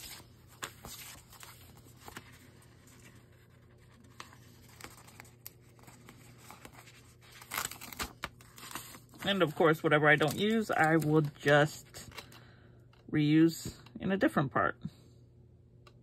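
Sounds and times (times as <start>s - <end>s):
paper sheets rustling: 0.0s - 12.4s.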